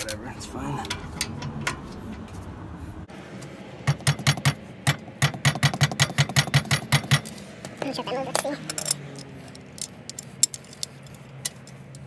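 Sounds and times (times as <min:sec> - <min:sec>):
ratchet wrench clicking: 0:08.3 - 0:12.0.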